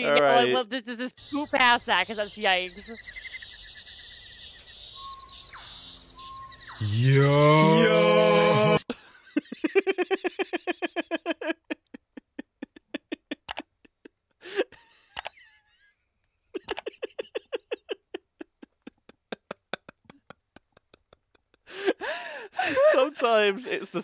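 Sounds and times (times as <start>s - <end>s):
people laughing hard: 7.5s - 13.6s, 14.4s - 15.6s, 16.6s - 23.8s
sharp gasp for breath: 21.7s - 22.7s.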